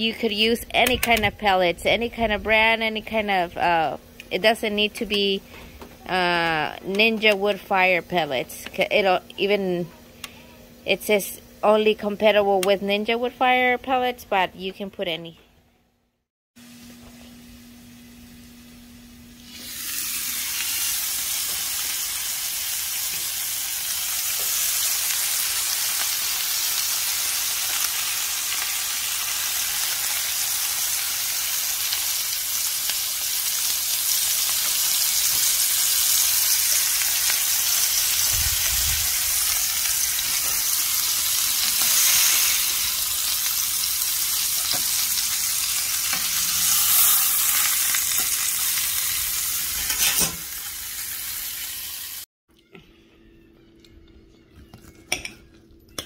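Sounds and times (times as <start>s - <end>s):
meat sizzling on grill: 16.6s - 52.3s.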